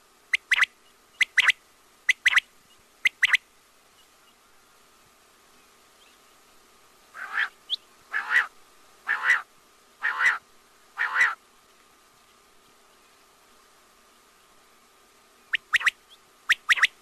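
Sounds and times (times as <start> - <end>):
faint steady hum: 0.0 - 17.0
quail calling: 0.3 - 2.4, 3.0 - 3.4, 7.1 - 10.4, 11.0 - 11.4, 15.5 - 17.0.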